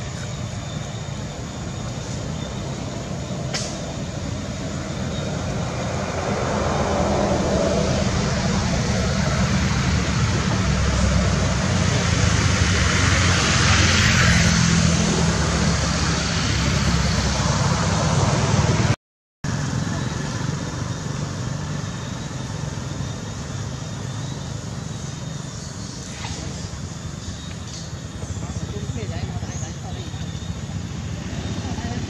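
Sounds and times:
vehicle engine running: 19.5 - 32.0.

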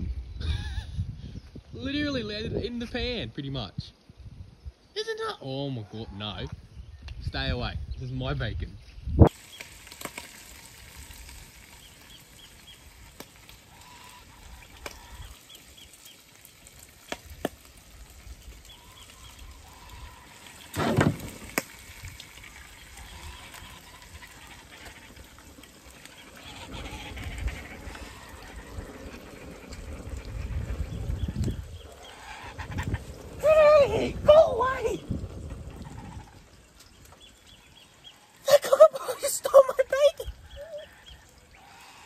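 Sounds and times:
bacon sizzling in a frying pan: 9.3 - 26.2.

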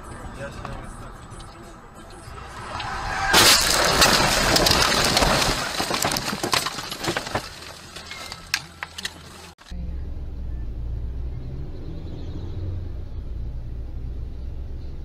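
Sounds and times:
car crash impact: 2.4 - 8.5
branches scraping against car: 2.4 - 9.6
twigs snapping and glass ticking: 3.3 - 9.5.

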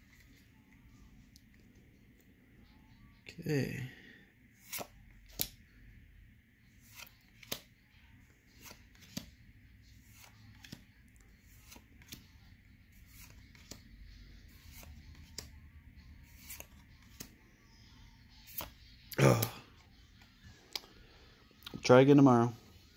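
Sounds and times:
trading cards snapping: 4.6 - 5.6, 6.9 - 7.7, 10.1 - 10.8.

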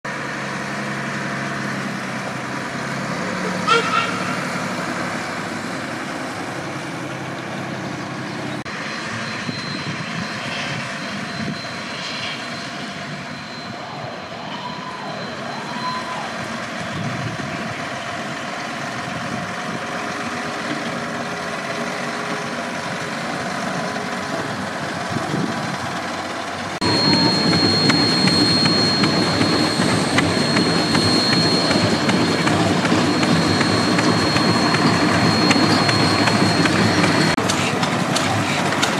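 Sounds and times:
fire engine diesel engine running: 0.1 - 38.9
steady high whine: 25.4 - 37.5.

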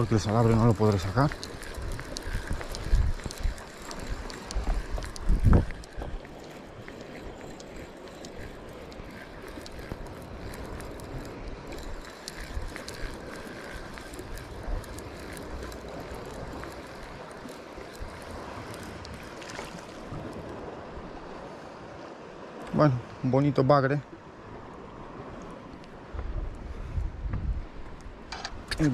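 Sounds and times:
faint clicks: 0.0 - 20.5
wind buffeting microphone: 0.0 - 21.5, 26.0 - 28.9
water lapping at rocks: 0.0 - 21.8.

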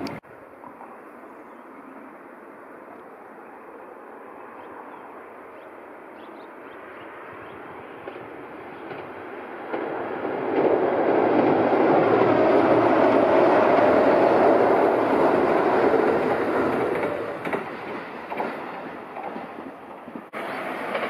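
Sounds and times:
electric train passing at speed: 0.0 - 21.0
train wheel clicks: 8.0 - 12.4, 15.5 - 21.0.

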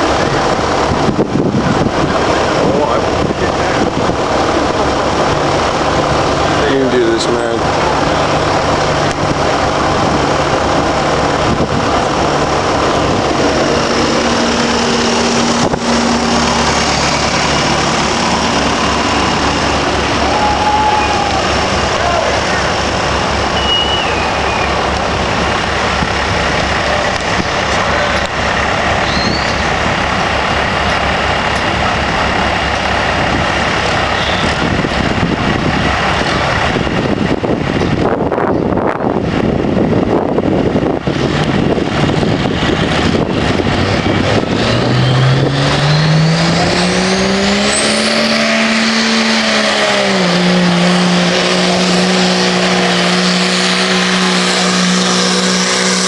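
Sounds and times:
truck engine idling and revving: 0.0 - 56.0
turbocharger whistle: 20.0 - 22.6, 23.4 - 24.8, 29.0 - 29.8, 34.1 - 34.6, 44.0 - 56.0.

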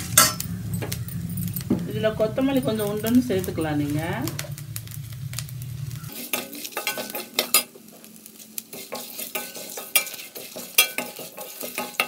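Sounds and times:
spatula clanging on pan: 0.0 - 1.9, 6.1 - 8.0, 8.6 - 12.0
spices sizzling: 0.0 - 12.0
spatula scraping metal pan: 6.1 - 12.0.

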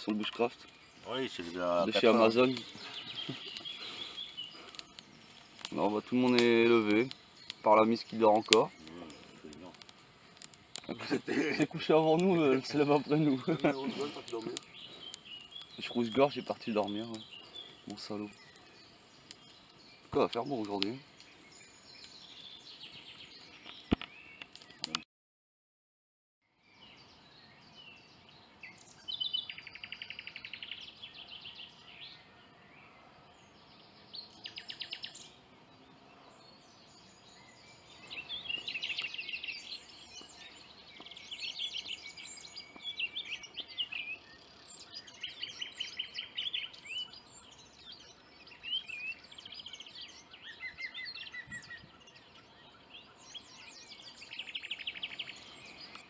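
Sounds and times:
songbird trilled phrases: 0.0 - 9.8, 10.8 - 25.0, 36.3 - 56.0
bird chirps: 0.0 - 25.0, 26.5 - 56.0.

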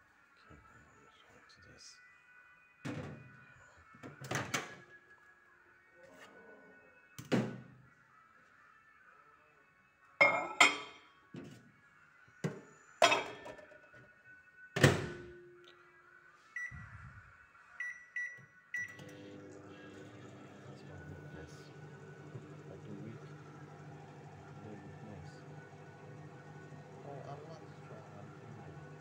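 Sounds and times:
microwave oven humming: 18.8 - 29.0.

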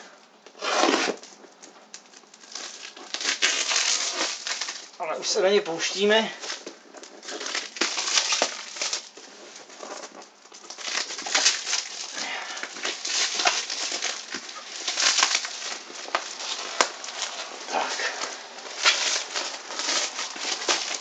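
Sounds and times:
plastic wrapping and tape crinkling: 0.0 - 21.0.

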